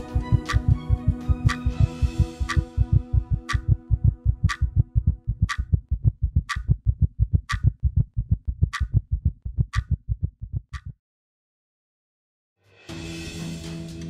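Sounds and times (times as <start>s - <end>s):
electronic logo music: 0.0s - 4.6s
fast low thumps: 0.0s - 11.0s
sharp ticks: 0.2s - 10.9s.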